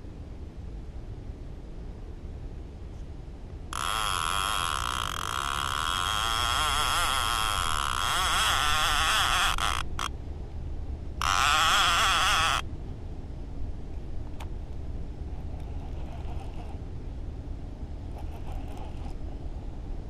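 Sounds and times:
fishing reel clicker buzzing: 3.7s - 10.1s, 11.2s - 12.6s.

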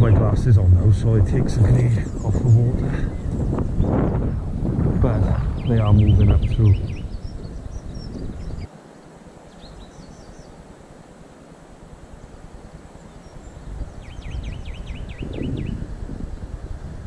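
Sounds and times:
wind rumble on microphone: 0.0s - 8.7s, 11.9s - 17.0s
small bird chirping: 5.4s - 8.7s, 13.0s - 15.8s.

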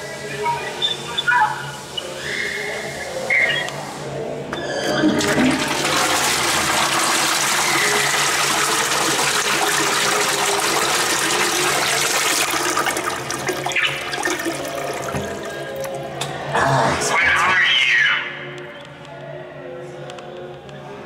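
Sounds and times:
toilet flushing: 4.6s - 16.2s.

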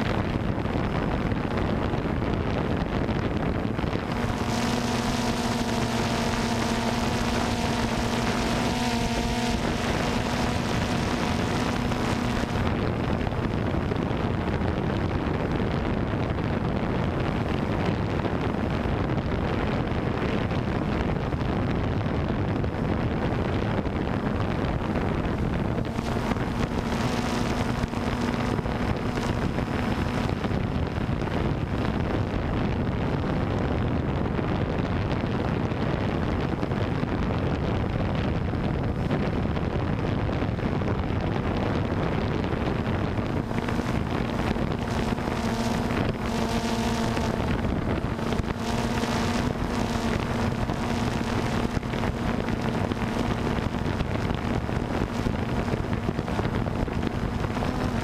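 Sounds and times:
wind rushing on microphone: 0.0s - 58.0s
humming tone: 2.8s - 15.9s, 24.4s - 32.7s, 40.4s - 58.0s
drone motors buzzing: 3.8s - 14.1s, 24.6s - 32.0s, 42.2s - 58.0s.

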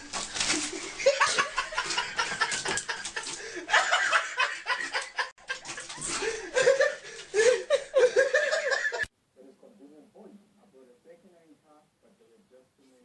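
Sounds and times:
person laughing: 0.5s - 9.1s.

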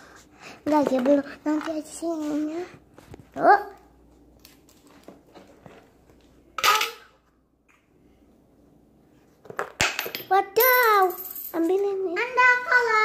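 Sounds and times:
loud coin clatter: 10.0s - 11.6s.

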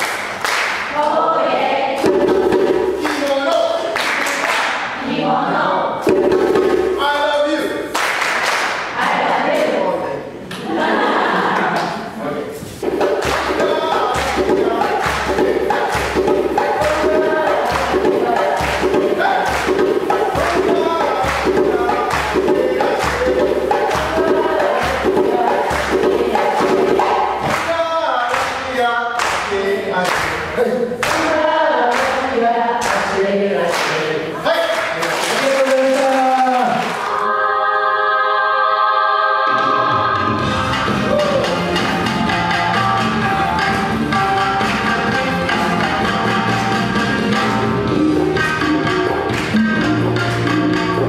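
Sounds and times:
clapping: 0.0s - 0.9s, 3.0s - 4.8s, 7.9s - 8.8s, 11.5s - 12.0s, 15.0s - 15.3s, 27.5s - 28.6s, 29.2s - 30.4s, 34.7s - 37.1s, 49.3s - 49.6s
group singing and chanting: 0.0s - 7.9s, 8.6s - 51.0s.

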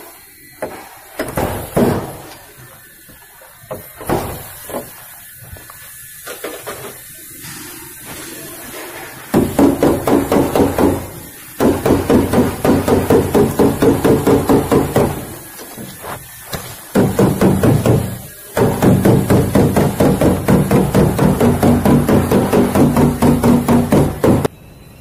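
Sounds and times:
knocking on metal car panel: 9.4s - 15.3s, 16.6s - 24.5s.

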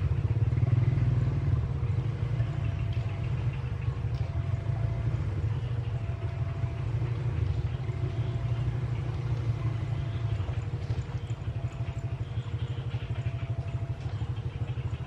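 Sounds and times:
engine pulsing rumble: 0.0s - 15.0s.

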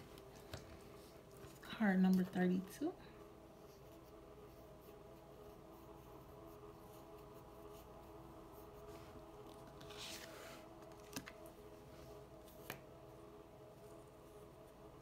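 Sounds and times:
faint room hum: 0.0s - 15.0s
card sliding across table: 9.7s - 11.3s.

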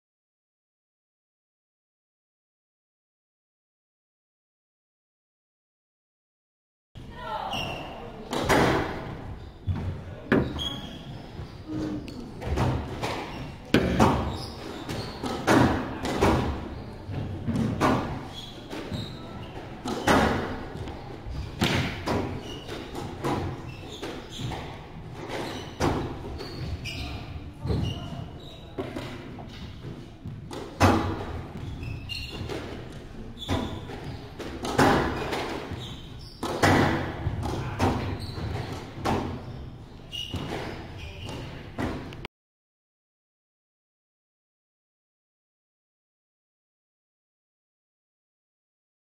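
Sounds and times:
shoes squeaking on hardwood: 9.3s - 15.5s, 16.2s - 36.8s, 37.6s - 41.9s
squash ball thuds: 21.6s - 24.7s.

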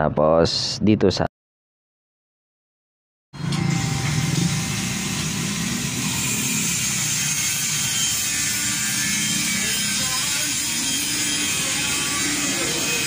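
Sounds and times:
motorcycle engine running: 3.4s - 13.0s.

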